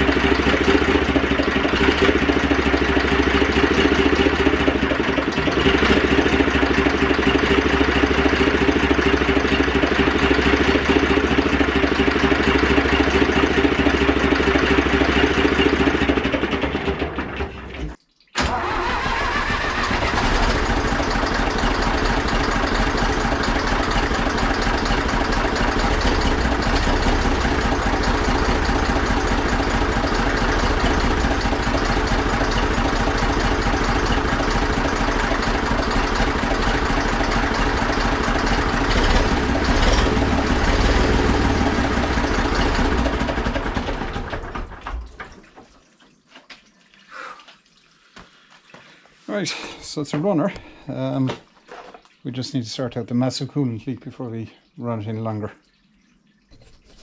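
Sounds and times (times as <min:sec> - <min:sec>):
tractor diesel engine running: 0:00.0 - 0:45.2.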